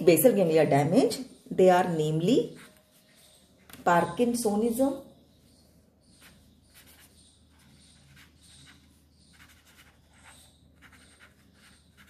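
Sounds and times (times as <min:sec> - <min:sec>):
pen scratching on paper: 0:06.1 - 0:12.0.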